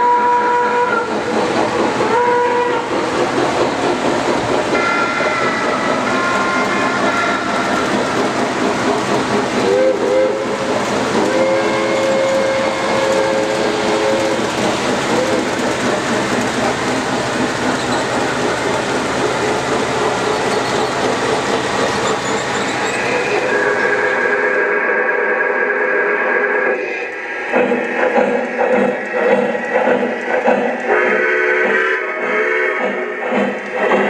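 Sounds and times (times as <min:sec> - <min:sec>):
train whistle toots: 0:00.0 - 0:01.2, 0:02.0 - 0:02.9, 0:04.7 - 0:08.2, 0:09.6 - 0:10.6, 0:11.2 - 0:14.5, 0:30.9 - 0:33.3
clatter of model trains running: 0:00.0 - 0:24.4, 0:27.5 - 0:34.0.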